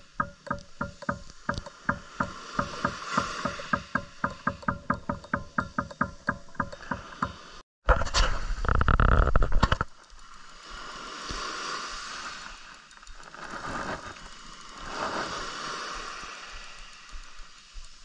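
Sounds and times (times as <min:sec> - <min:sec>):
small waves washing on shore: 0:00.0 - 0:07.6, 0:09.8 - 0:18.0
fishing reel drag ratcheting: 0:08.7 - 0:18.0.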